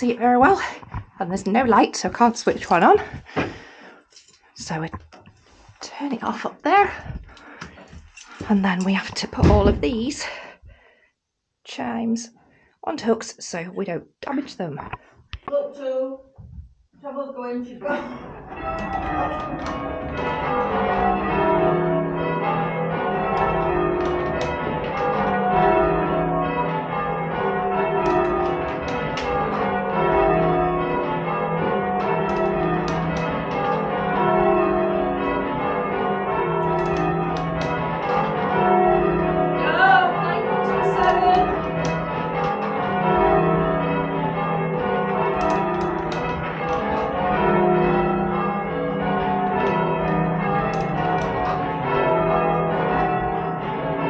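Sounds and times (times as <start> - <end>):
church bells ringing: 0.0 - 4.8, 17.9 - 54.0.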